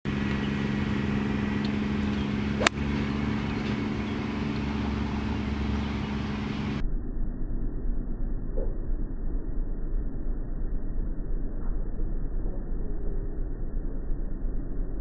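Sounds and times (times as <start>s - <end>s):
low mechanical hum: 0.0s - 15.0s
golf club striking ball: 0.1s - 6.8s.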